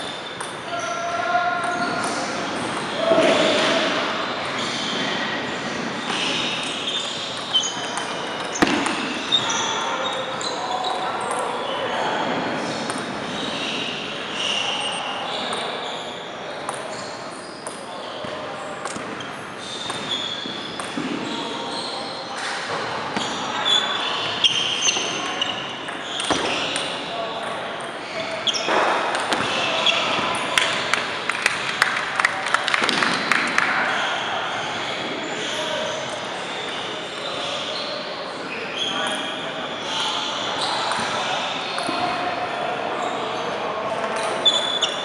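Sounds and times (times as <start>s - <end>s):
sneakers squeaking on hardwood: 0.0s - 30.9s, 44.1s - 45.0s
gym hall reverberant noise: 0.0s - 45.0s
short high squeaks: 6.0s - 11.0s, 13.3s - 16.3s, 19.3s - 22.2s, 28.0s - 28.8s, 44.2s - 45.0s.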